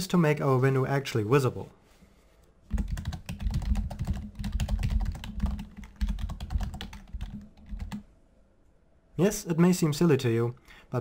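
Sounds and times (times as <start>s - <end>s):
fast typing on keyboard: 2.7s - 8.0s.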